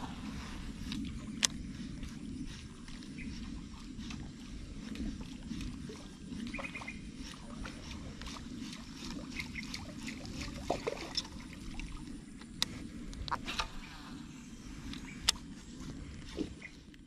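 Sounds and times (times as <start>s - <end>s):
water lapping against hull: 0.0s - 17.0s
small clicks and ticks: 0.8s - 5.7s
chirps: 1.2s - 4.6s, 6.2s - 7.4s.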